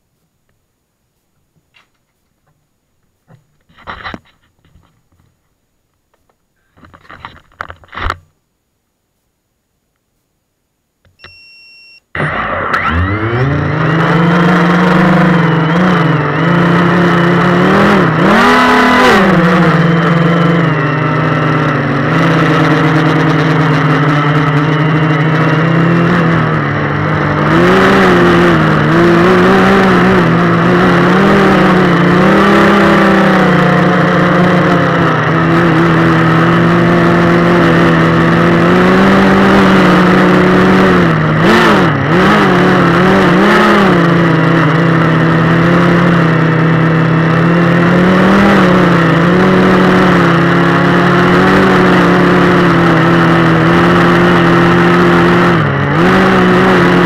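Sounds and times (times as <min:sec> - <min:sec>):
short beep: 0:11.1 - 0:12.7
drone motors whining: 0:11.1 - 0:57.0.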